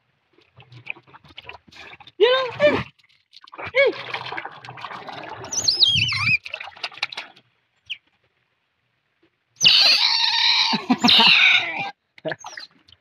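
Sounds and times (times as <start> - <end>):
otter squealing: 5.5 - 6.4, 9.6 - 11.9
otters chirping: 5.5 - 6.4.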